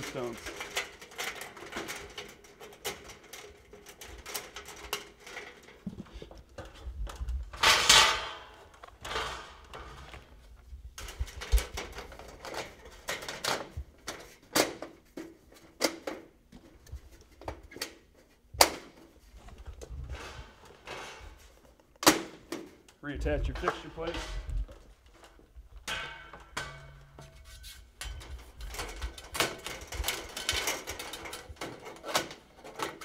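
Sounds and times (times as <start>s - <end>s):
hands clattering on sheet metal: 0.0s - 10.1s, 25.8s - 33.0s
metallic rattle: 25.8s - 33.0s.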